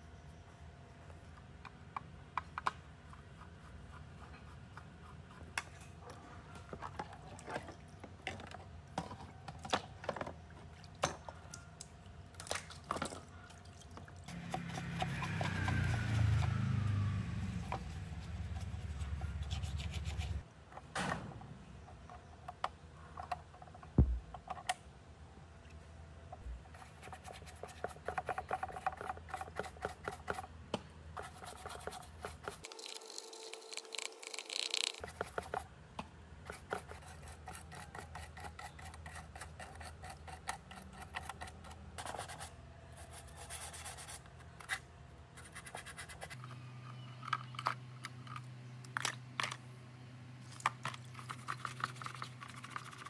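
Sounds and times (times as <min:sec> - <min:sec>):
tool scratching circuit board: 0:14.3 - 0:16.3, 0:17.6 - 0:20.4, 0:36.5 - 0:42.5
brush scrubbing circuit board: 0:14.3 - 0:16.6, 0:17.4 - 0:20.4, 0:51.0 - 0:53.0.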